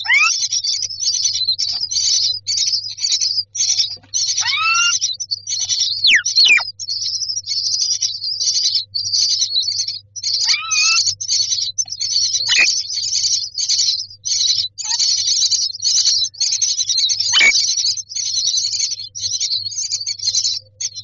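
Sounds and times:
sliding bird calls: 0:00.0 - 0:00.4, 0:04.4 - 0:05.0, 0:06.0 - 0:06.6, 0:10.4 - 0:11.0, 0:12.5 - 0:12.7
nestlings begging chirps: 0:00.0 - 0:21.0.

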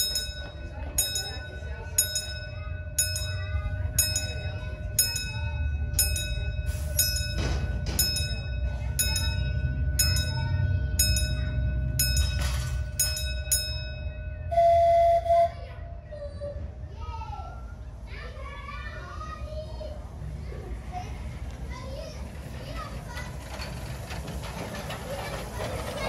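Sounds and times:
level crossing bell ringing: 0:00.0 - 0:15.7
low rumble of miniature train: 0:00.0 - 0:26.0.

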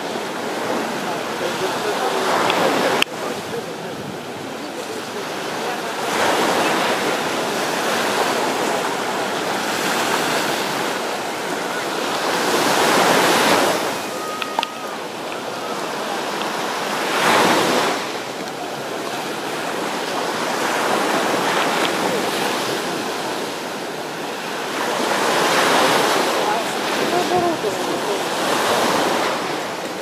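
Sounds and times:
sea surf: 0:00.0 - 0:30.0
wind noise on microphone: 0:02.3 - 0:04.7.

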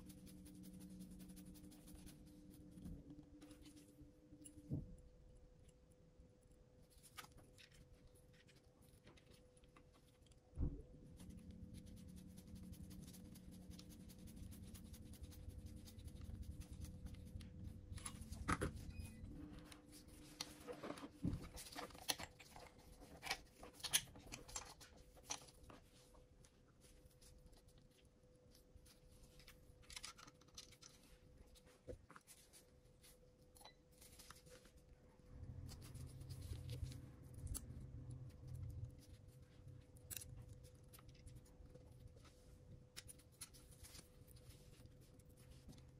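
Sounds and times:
low steady hum: 0:00.0 - 0:45.9
thump: 0:10.6 - 0:10.9.

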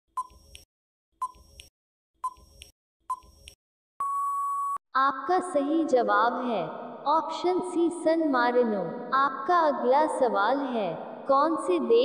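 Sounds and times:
countdown timer beeping ticks: 0:00.1 - 0:00.6, 0:01.2 - 0:01.6, 0:02.2 - 0:04.2
long steady beep: 0:04.0 - 0:04.8.

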